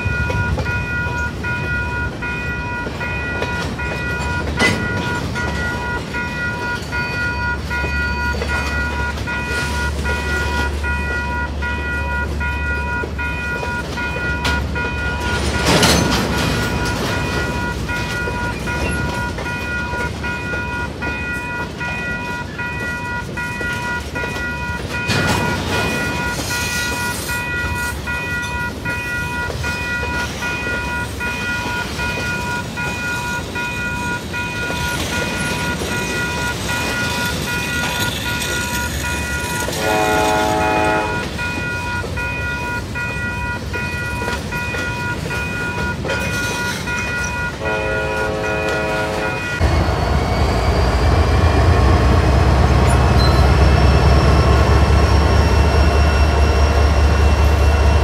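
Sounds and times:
crossing signal bell ringing: 0:00.0 - 0:49.8, 0:51.0 - 0:58.0
train wheels clattering on rails: 0:00.0 - 0:58.0
train horn: 0:39.7 - 0:41.4, 0:47.5 - 0:49.6.

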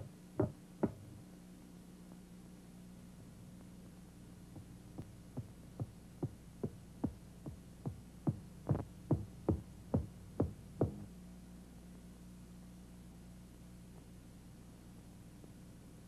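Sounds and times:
faint steady hum: 0:00.0 - 0:16.0
cartoon footstep thuds: 0:05.4 - 0:11.0.

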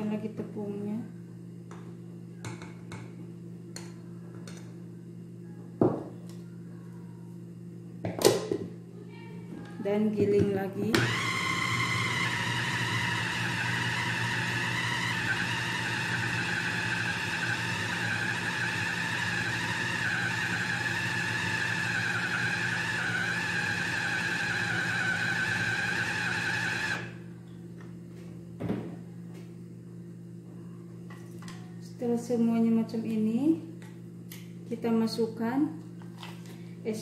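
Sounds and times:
food chopper motor running: 0:11.0 - 0:27.2.

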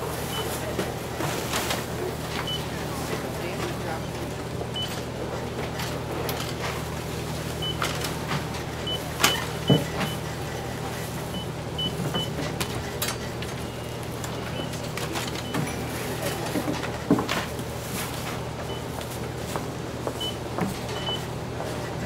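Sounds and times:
clatter of goods: 0:00.1 - 0:22.0
barcode scanner beeps: 0:20.2 - 0:20.4.

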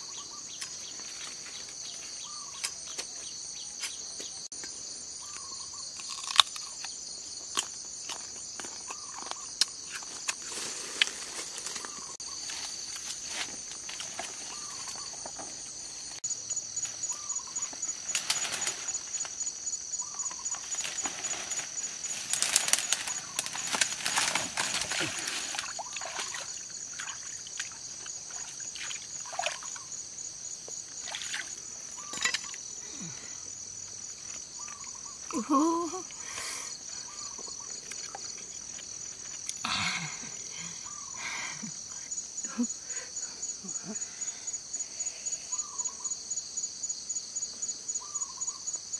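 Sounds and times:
leaves and brush rustling: 0:00.0 - 0:04.2, 0:08.9 - 0:30.1
crickets chirping: 0:00.0 - 0:48.9.

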